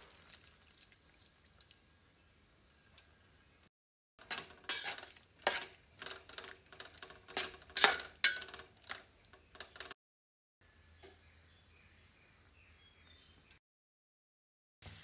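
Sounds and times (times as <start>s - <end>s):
metal spoon scraping metal pot: 4.2s - 9.9s.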